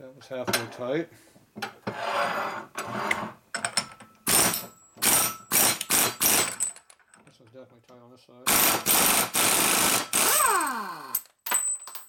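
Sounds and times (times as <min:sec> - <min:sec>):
air impact wrench hammering: 0:04.3 - 0:06.6, 0:08.5 - 0:11.3.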